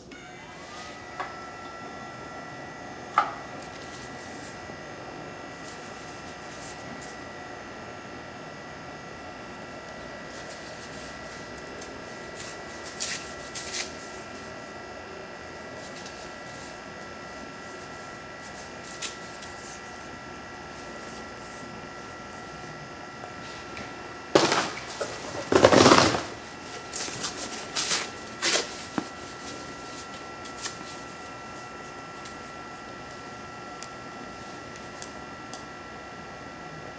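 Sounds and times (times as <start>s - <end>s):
stove fan whine: 0.0s - 36.9s
wood burning: 0.6s - 35.7s.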